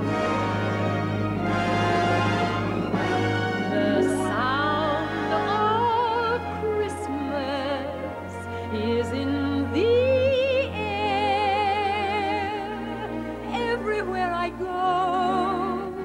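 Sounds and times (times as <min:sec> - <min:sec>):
orchestra sustained low chords: 0:00.0 - 0:16.0
woman singing with vibrato: 0:03.7 - 0:16.0.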